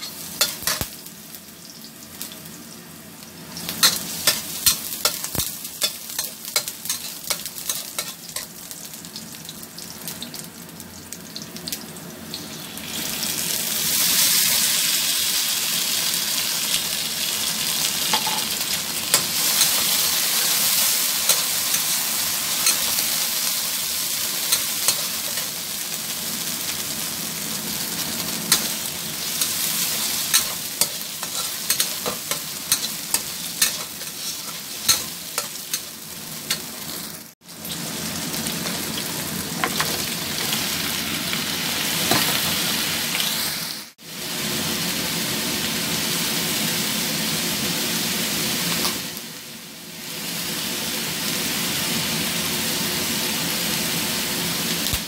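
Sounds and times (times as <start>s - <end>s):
food sizzling in hot oil: 0.0s - 55.0s
spatula scraping wok: 3.6s - 8.5s, 18.1s - 25.6s, 27.8s - 37.1s.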